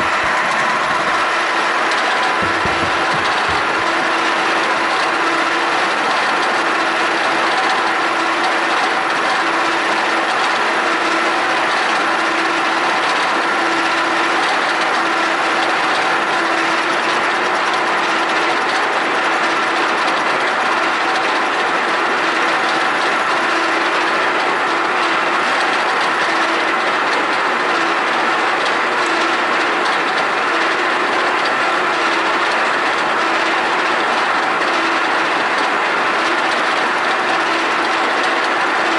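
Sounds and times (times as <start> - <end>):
gritty metal cutting noise: 0.0 - 10.2
milling machine whine: 0.0 - 38.9.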